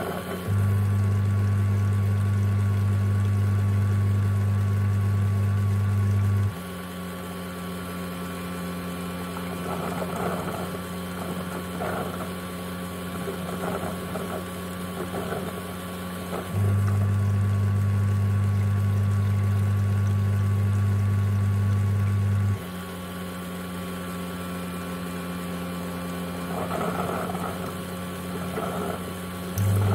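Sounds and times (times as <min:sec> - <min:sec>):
loud motor hum: 0:00.0 - 0:29.9
water sloshing and splashing: 0:08.8 - 0:17.5, 0:26.0 - 0:29.9.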